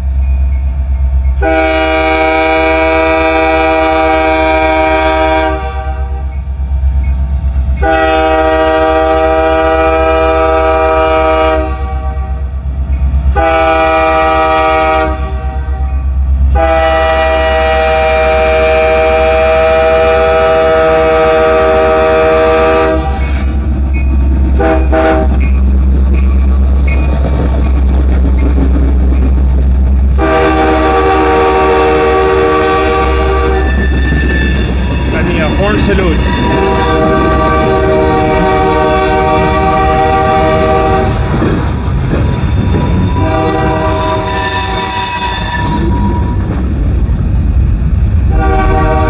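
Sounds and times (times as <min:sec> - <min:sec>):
locomotive air horn blasts: 0:01.4 - 0:06.3, 0:07.8 - 0:12.5, 0:13.3 - 0:23.3, 0:24.6 - 0:25.4, 0:30.1 - 0:33.9, 0:35.2 - 0:41.2, 0:42.8 - 0:46.4, 0:48.3 - 0:49.0
train wheels clattering: 0:23.1 - 0:30.6, 0:33.5 - 0:48.1.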